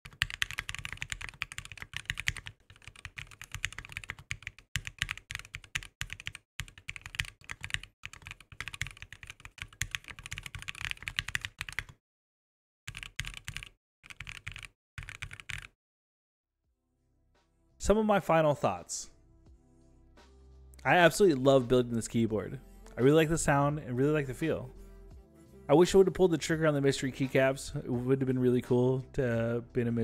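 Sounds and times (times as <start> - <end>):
keyboard typing: 0.0 - 12.0, 12.9 - 15.8.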